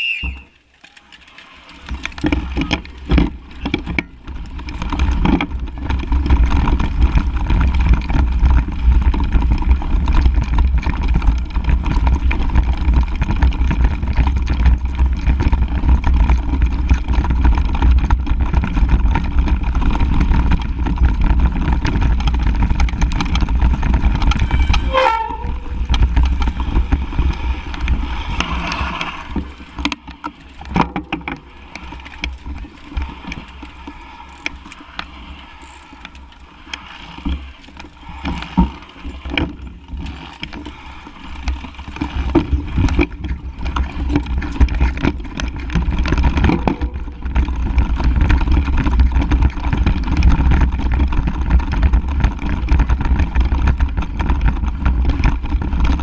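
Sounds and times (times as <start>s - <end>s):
bike knocks and rattles: 0.2s - 56.0s
wind rumble on microphone: 1.9s - 34.4s, 37.1s - 56.0s.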